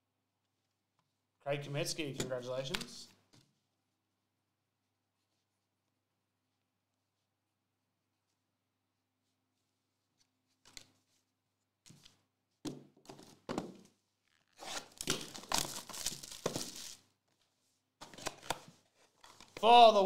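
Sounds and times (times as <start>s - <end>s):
packaging tearing and crinkling: 14.5s - 17.0s.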